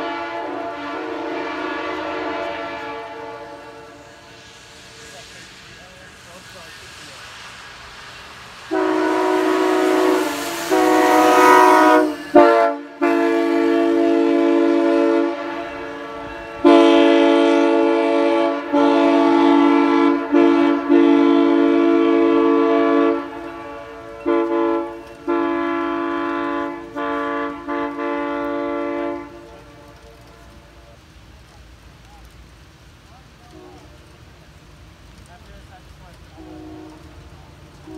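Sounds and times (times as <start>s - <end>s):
train air horn chord blasts: 0.0s - 6.3s, 8.6s - 30.6s, 36.4s - 37.2s.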